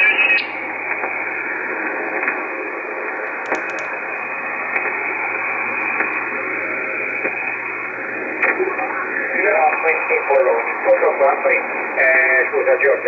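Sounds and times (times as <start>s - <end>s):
radio receiver hiss: 0.0s - 13.0s
faint static clicks: 3.2s - 6.2s.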